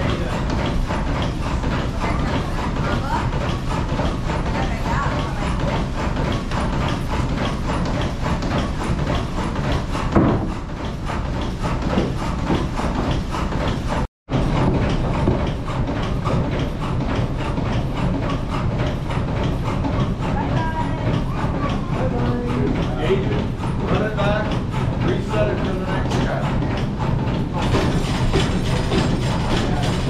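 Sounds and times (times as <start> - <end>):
sawmill machinery clattering: 0.0 - 30.0
loud knock: 7.5 - 10.6.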